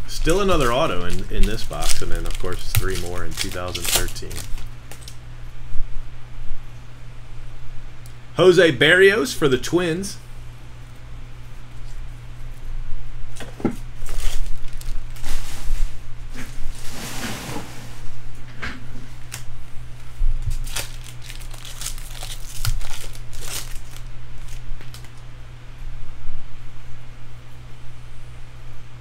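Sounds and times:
wrappers crinkling: 0.1 - 5.2, 13.4 - 16.9, 20.4 - 25.3
wrapper tearing rustle: 0.2 - 5.2, 13.4 - 17.0, 20.4 - 25.2.

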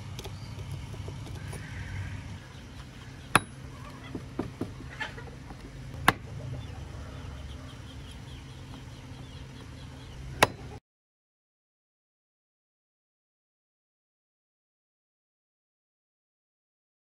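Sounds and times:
steady low hum: 0.0 - 10.8
throwing star striking wood: 6.0 - 6.2, 10.4 - 10.7.

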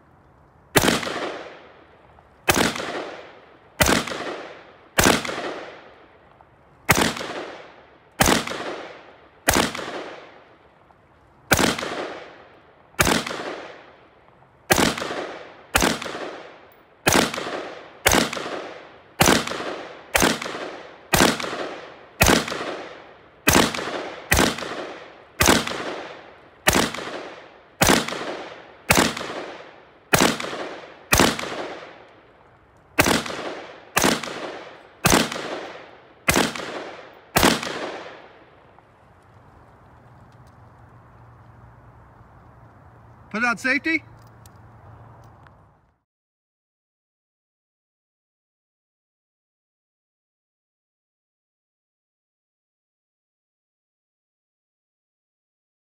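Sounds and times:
rifle shots echoing: 0.7 - 10.8, 11.5 - 39.6.

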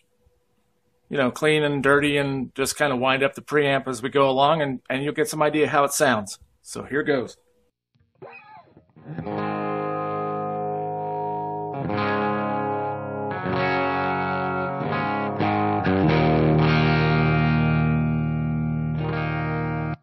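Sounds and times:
electric guitar chords ringing: 8.1 - 20.0.

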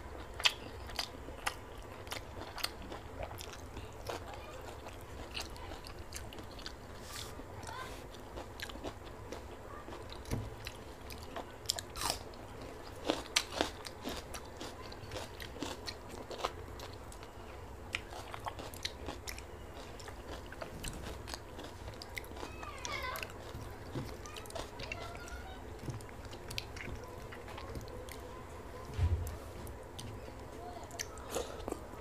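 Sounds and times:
steady low hum: 0.0 - 32.0
person crunching and chewing: 0.3 - 7.4, 8.1 - 17.3, 17.9 - 22.6.

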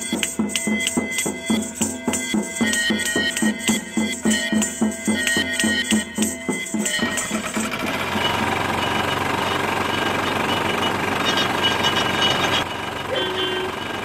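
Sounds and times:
music with drumbeat: 0.0 - 14.0
juice press engine knocking: 7.2 - 14.0.

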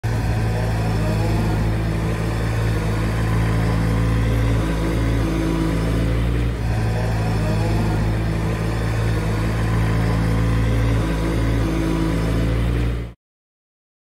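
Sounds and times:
diesel engine running: 0.0 - 13.2.

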